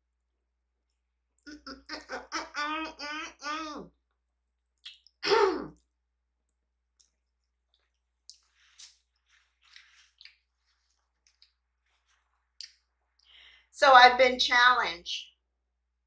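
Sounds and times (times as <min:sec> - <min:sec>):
quiet chewing: 0:04.0 - 0:13.3
mouth clicks and smacks: 0:04.1 - 0:13.3.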